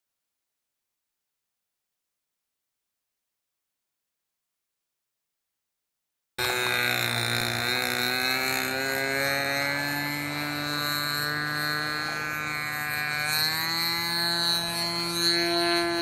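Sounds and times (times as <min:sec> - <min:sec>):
model plane engine buzzing: 0:06.4 - 0:16.0.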